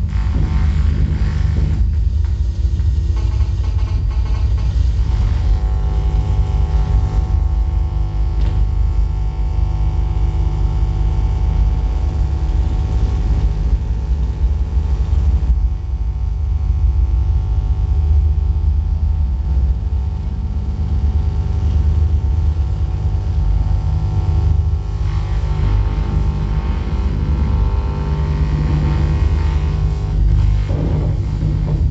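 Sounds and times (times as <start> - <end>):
deep bass rumble: 0.0 - 31.9
steady humming tones: 0.0 - 31.9.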